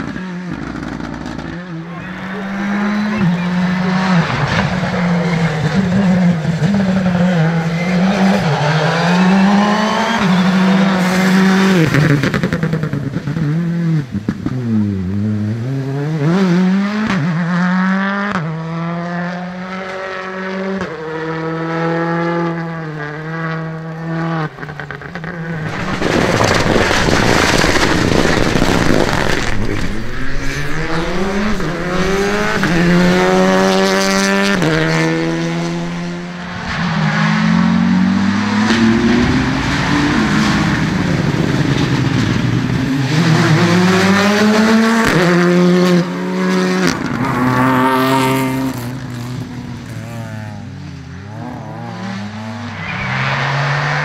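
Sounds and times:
rally car engines revving: 0.0s - 54.0s
road noise: 0.0s - 54.0s
car passing close: 24.0s - 54.0s.

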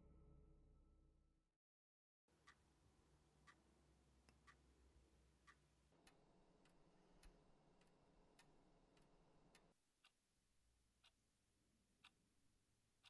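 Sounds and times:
clock ticking: 2.3s - 10.2s.

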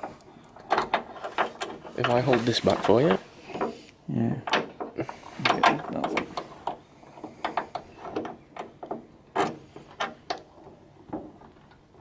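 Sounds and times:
metal and plastic parts clicking: 0.0s - 3.8s, 4.4s - 12.0s
parts rubbing: 0.0s - 12.0s.

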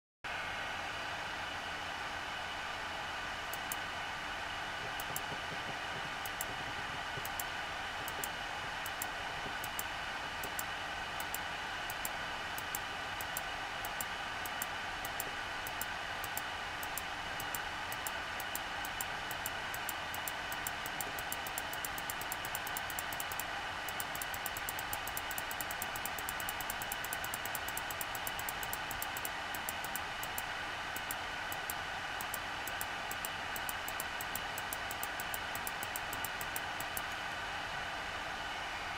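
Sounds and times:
machine hum and hiss: 0.3s - 38.9s
sharp high ticks: 3.5s - 3.8s, 4.9s - 5.4s, 6.2s - 6.6s, 7.2s - 37.2s.

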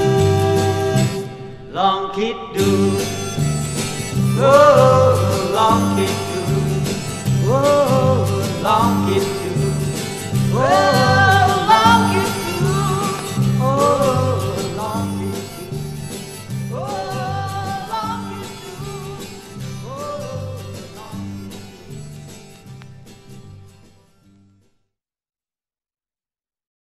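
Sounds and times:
stepping bass line: 0.0s - 1.3s, 2.6s - 22.4s
pop-rock lead line: 0.0s - 1.8s, 2.6s - 22.6s.

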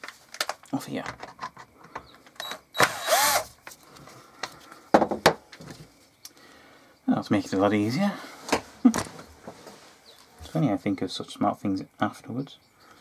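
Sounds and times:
clicks and knocks of parts: 0.0s - 3.0s
cordless drill motor spinning: 2.4s - 3.5s.

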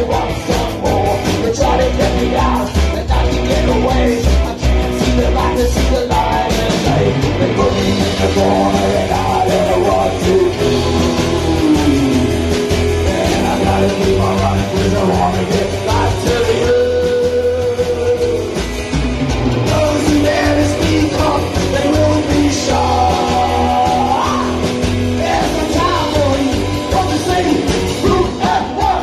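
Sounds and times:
drums: 0.0s - 29.0s
upright double bass: 0.0s - 29.0s.

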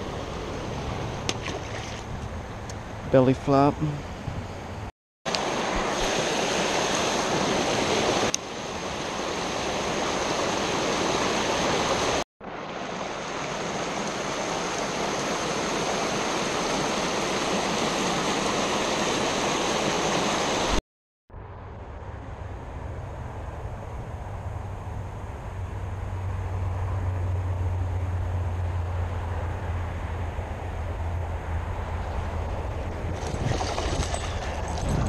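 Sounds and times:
creek water rushing over rocks: 5.3s - 20.8s.

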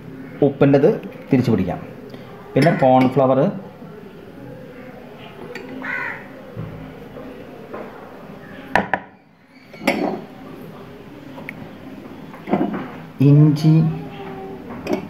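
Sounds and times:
metal spoon clinking on dishes: 9.7s - 10.3s, 14.8s - 15.0s.

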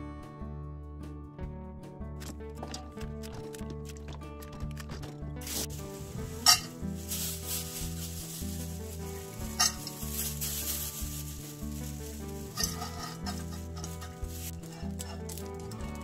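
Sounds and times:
background music: 0.0s - 16.0s
dried fish rustling into pan: 5.4s - 16.0s.

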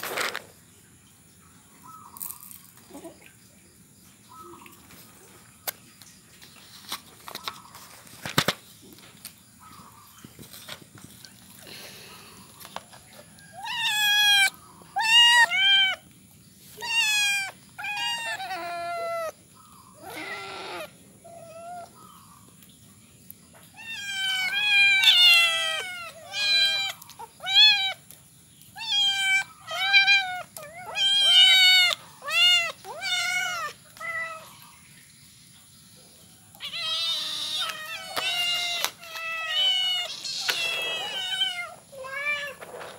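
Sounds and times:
kittens meowing: 13.5s - 16.0s, 16.8s - 22.0s, 23.8s - 28.0s, 28.8s - 34.6s, 36.5s - 42.7s.

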